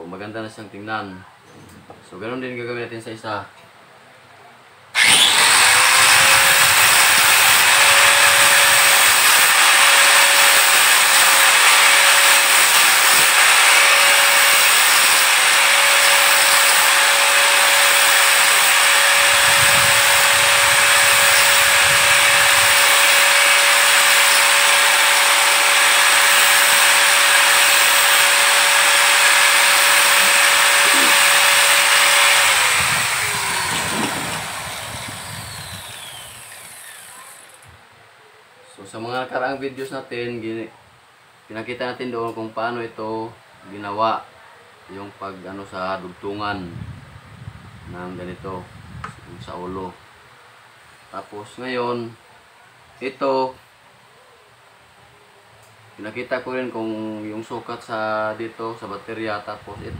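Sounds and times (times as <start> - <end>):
angle grinder grinding plastic pipe: 5.0 - 37.7.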